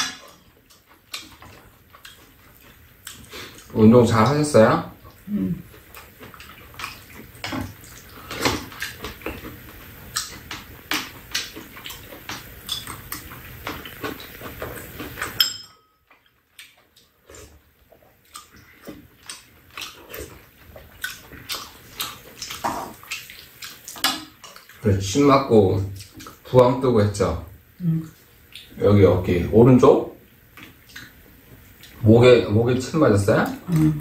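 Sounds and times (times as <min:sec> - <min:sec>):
chewing and slurping: 0:00.0 - 0:03.8, 0:04.9 - 0:15.5, 0:16.1 - 0:24.9, 0:25.8 - 0:26.5, 0:30.5 - 0:32.0
background hum: 0:00.0 - 0:34.0
spoons clinking against frying pan: 0:15.4 - 0:16.0.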